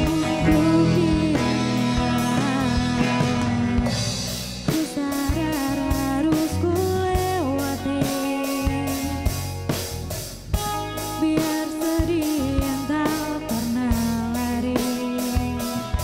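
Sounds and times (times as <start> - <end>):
woman singing: 0.0 - 9.4, 11.0 - 16.0
drum kit beat: 0.0 - 16.0
electric guitar: 0.0 - 16.0.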